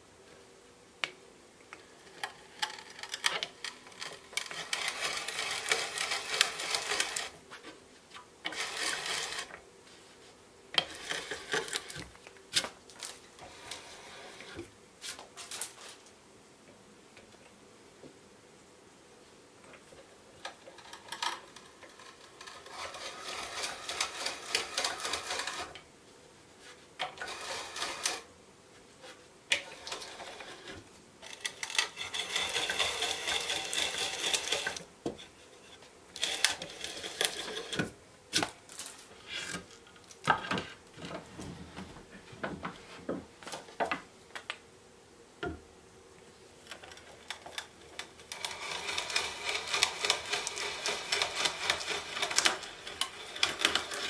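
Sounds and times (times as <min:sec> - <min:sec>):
hand brace bit boring wood: 0:02.0 - 0:07.4, 0:08.4 - 0:09.6, 0:10.7 - 0:12.2, 0:13.4 - 0:14.7, 0:20.4 - 0:25.8, 0:27.0 - 0:28.3, 0:29.5 - 0:35.4, 0:36.2 - 0:38.0, 0:46.7 - 0:54.0.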